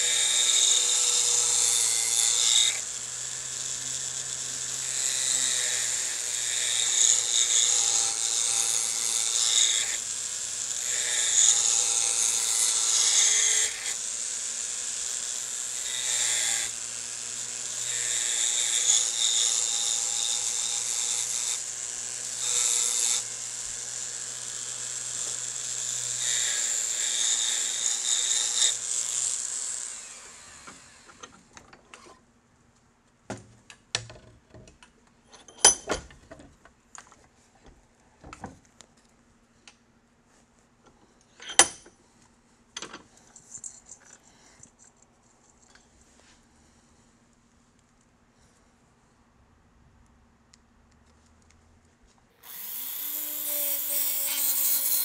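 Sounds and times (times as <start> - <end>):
cutter scratching wood: 0.0 - 31.3, 52.4 - 55.0.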